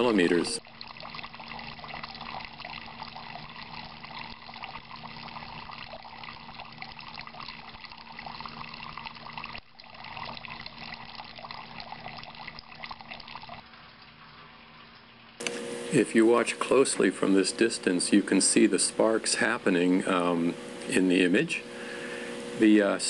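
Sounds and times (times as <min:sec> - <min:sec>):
water trickling into bucket: 0:00.0 - 0:15.5.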